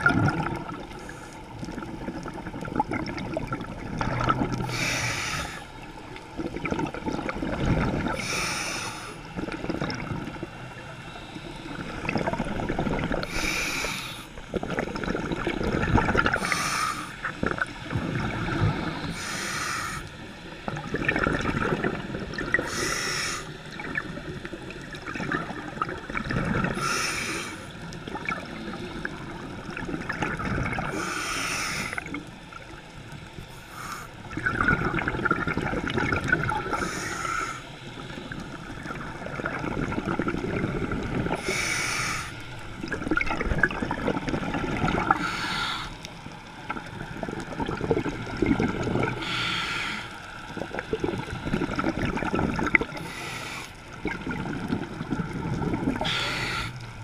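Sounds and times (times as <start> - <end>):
bubbly gurgling exhales: 0.0 - 5.2, 6.3 - 8.5, 9.4 - 19.4, 20.6 - 31.1, 34.2 - 41.8, 42.6 - 45.8, 46.6 - 49.6, 50.3 - 53.2, 53.9 - 57.0
regulator hissing inhale: 0.9 - 1.6, 4.6 - 6.0, 8.1 - 9.4, 10.8 - 12.0, 13.2 - 14.5, 16.3 - 17.4, 18.4 - 20.6, 22.6 - 23.8, 26.7 - 29.5, 30.9 - 32.7, 33.4 - 34.3, 36.7 - 38.5, 41.3 - 42.7, 45.2 - 46.3, 49.1 - 50.5, 52.9 - 54.0, 55.9 - 57.0.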